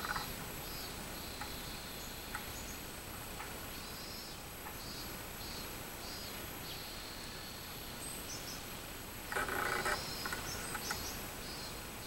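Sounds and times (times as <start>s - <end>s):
cicada buzzing: 0.0s - 2.6s, 9.2s - 11.6s
loud rough noise: 9.3s - 10.4s.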